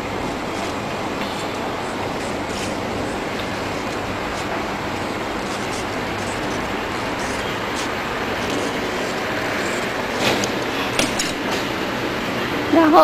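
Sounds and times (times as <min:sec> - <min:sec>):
steady rushing noise: 0:00.0 - 0:13.0
shears cutting fabric clicks: 0:00.4 - 0:11.7.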